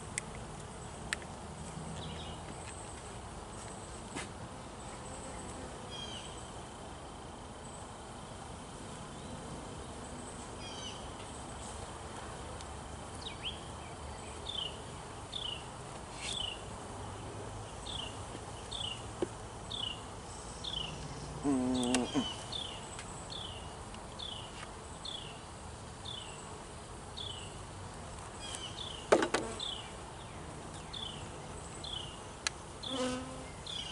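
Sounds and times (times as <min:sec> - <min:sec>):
bees humming: 0:01.8 - 0:33.9
bee buzzing close by: 0:14.2 - 0:33.9
bird chirping: 0:19.7 - 0:25.4, 0:28.4 - 0:32.2.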